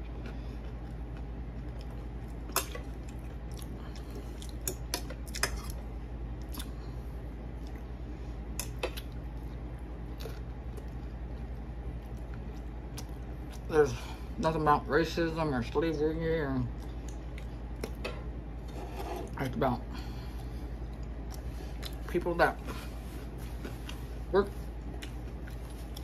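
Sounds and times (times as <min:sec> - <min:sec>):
chewing: 0:00.0 - 0:05.8, 0:08.6 - 0:13.7, 0:20.8 - 0:22.0, 0:24.8 - 0:26.0
steady low hum: 0:00.0 - 0:26.0.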